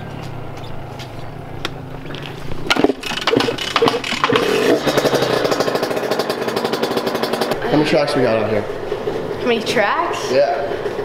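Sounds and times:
motorbike engine running: 0.0 - 11.0
motorbike kick-start: 0.2 - 7.6.

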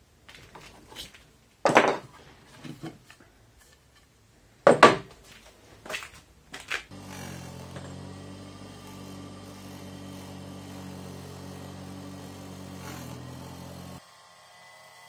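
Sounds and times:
power tool motor running: 6.9 - 15.0.

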